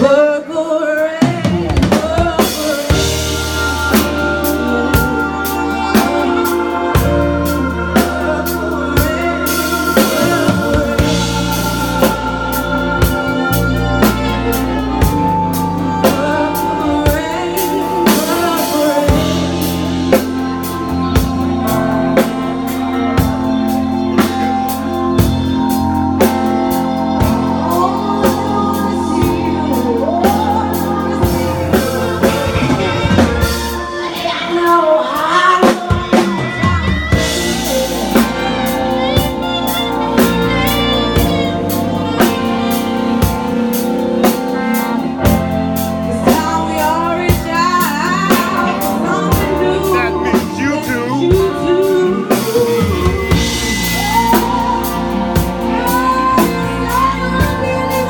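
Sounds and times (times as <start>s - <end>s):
live band playing rock ballad: 0.0s - 58.0s
person singing: 0.0s - 58.0s
drum kit beat: 1.0s - 58.0s.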